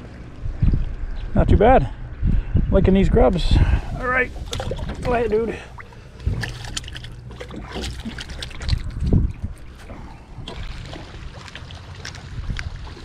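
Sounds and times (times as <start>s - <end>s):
water splashing and dripping: 4.3s - 13.0s.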